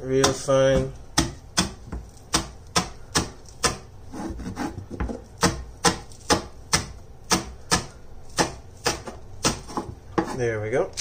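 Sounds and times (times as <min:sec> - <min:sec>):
knife chopping on wooden board: 0:00.1 - 0:10.4.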